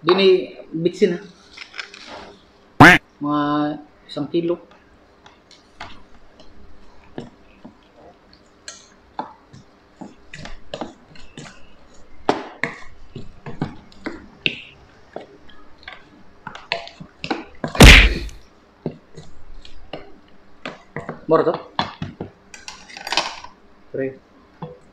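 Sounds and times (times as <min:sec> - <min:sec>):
loud clunk: 0:17.8 - 0:18.4.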